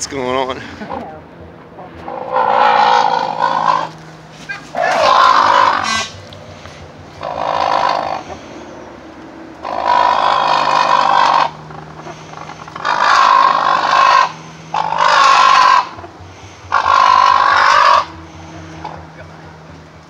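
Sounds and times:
cranes calling harshly: 2.0s - 19.7s.

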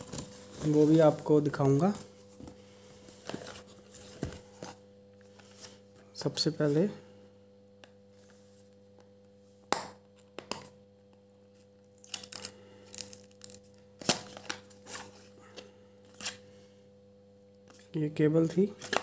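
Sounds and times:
cardboard rustling and scraping: 0.0s - 5.8s.

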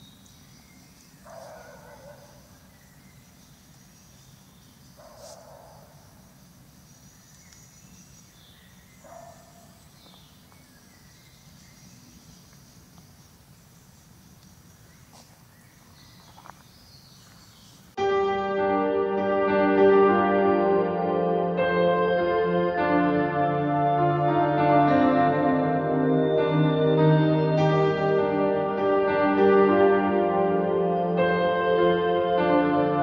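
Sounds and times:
low steady hiss: 0.0s - 33.0s
high bird calls: 14.6s - 18.0s
music: 18.0s - 33.0s.

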